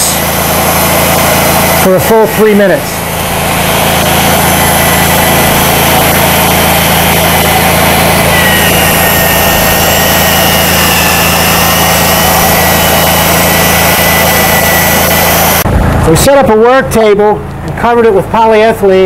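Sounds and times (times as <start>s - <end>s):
electric drill mixing: 0.0s - 16.2s.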